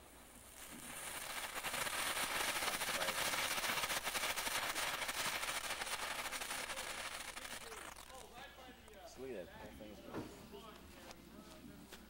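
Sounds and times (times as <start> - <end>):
firework fountain hissing and crackling: 0.0 - 9.2.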